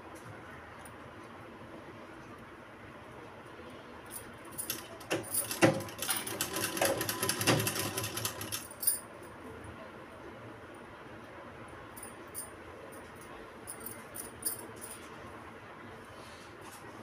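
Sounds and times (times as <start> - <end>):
sewing machine stitching: 4.7 - 8.6
sewing machine knocks: 5.1 - 8.1.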